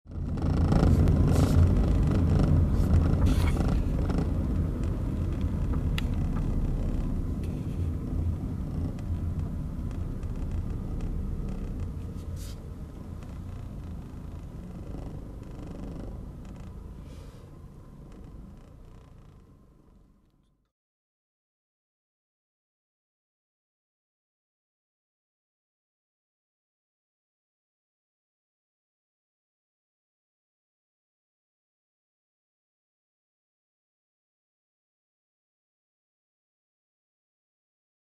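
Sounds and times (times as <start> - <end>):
car engine and tyres rumbling: 0.1 - 20.7.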